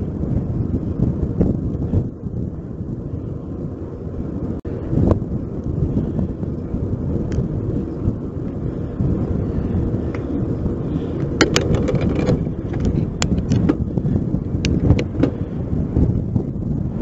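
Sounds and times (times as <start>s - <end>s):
road and tyre noise: 0.0s - 17.0s
wind buffeting microphone: 0.0s - 17.0s
sharp clicks or rattles: 11.4s - 13.8s.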